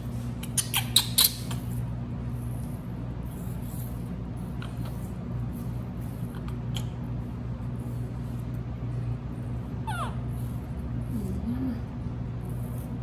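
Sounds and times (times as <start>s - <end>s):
steady low hum: 0.0s - 13.0s
baby monkey squeak: 0.4s - 1.6s, 9.8s - 10.2s.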